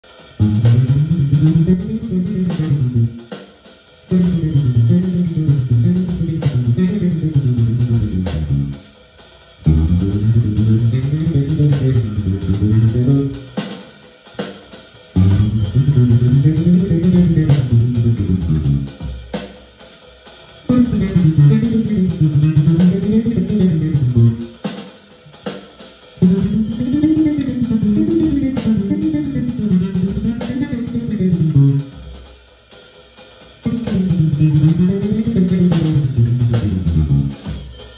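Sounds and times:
electric bass runs: 0.4 - 3.2, 4.1 - 8.8, 9.6 - 13.4, 15.2 - 18.9, 20.7 - 24.4, 33.7 - 37.4.

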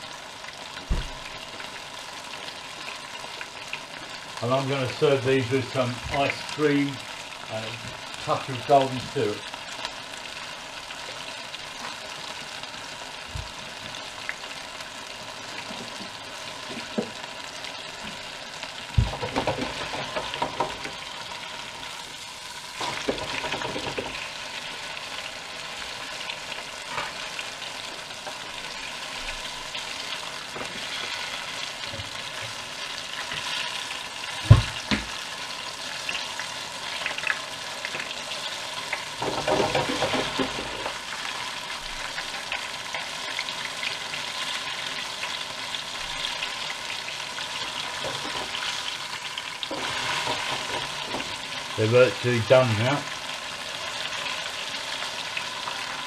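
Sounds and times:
oil bubbling and sizzling: 0.0 - 56.0
knocks and clatters: 19.0 - 21.0, 22.8 - 24.2, 39.2 - 40.9.

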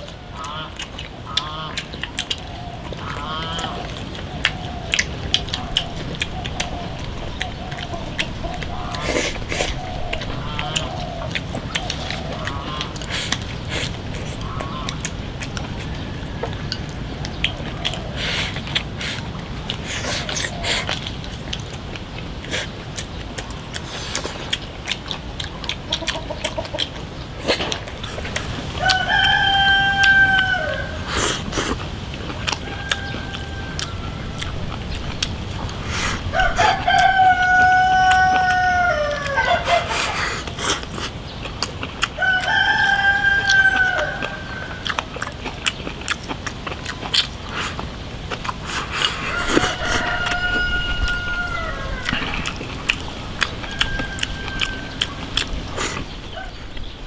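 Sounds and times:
rooster crowing: 28.5 - 31.1, 32.5 - 34.9, 36.2 - 39.9, 42.2 - 44.9, 49.1 - 55.5.

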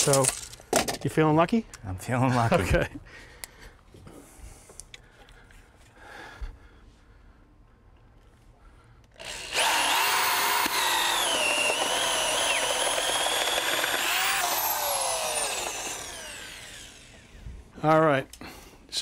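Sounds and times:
cordless drill boring through wood: 9.1 - 17.5.

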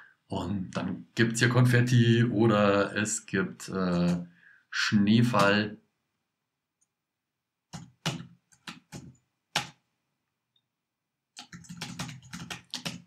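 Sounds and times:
laptop keyboard typing: 7.7 - 9.8, 11.3 - 13.0.

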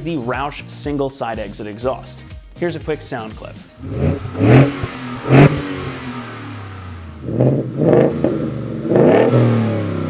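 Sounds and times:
engine revving: 3.8 - 10.0.

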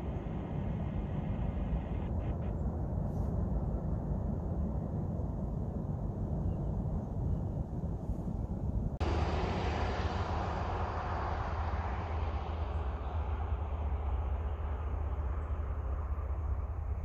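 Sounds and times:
freight train rumbling past: 9.0 - 17.0
train wheel and car noise: 9.0 - 17.0.

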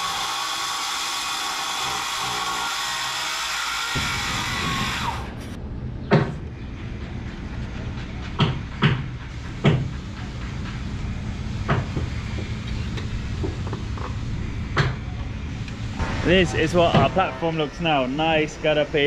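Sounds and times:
steady low hum: 3.9 - 19.0.

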